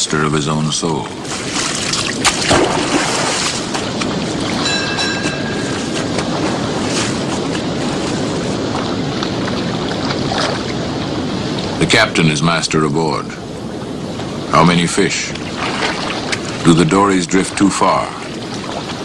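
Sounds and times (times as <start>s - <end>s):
rough sea rushing: 0.0s - 19.0s
wind: 0.0s - 19.0s
high-pitched tone: 4.6s - 6.1s.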